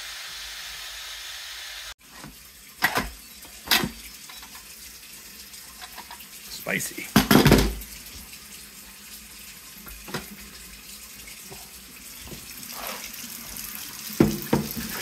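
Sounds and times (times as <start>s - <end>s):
tap running into metal sink: 9.8s - 10.4s, 14.1s - 15.0s.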